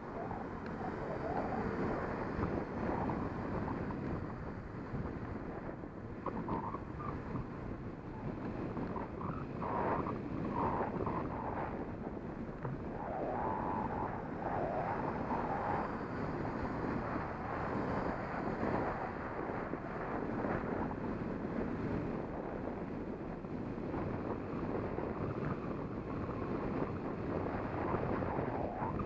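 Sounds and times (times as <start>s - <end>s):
wind rushing over microphone: 0.0s - 29.0s.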